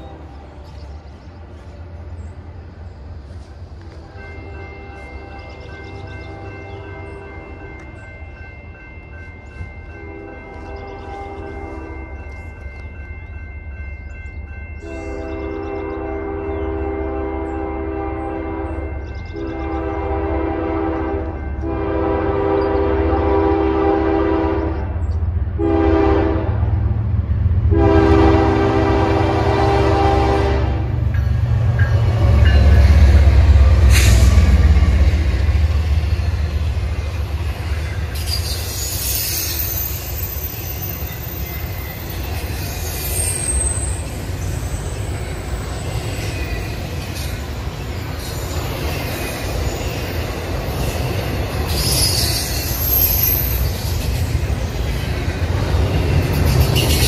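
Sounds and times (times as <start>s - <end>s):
locomotive engine passing: 0.0s - 57.0s
locomotive horn: 10.0s - 12.2s, 14.8s - 24.9s, 25.5s - 26.9s, 27.6s - 31.1s
train wheel squeal: 31.2s - 35.0s, 37.4s - 57.0s.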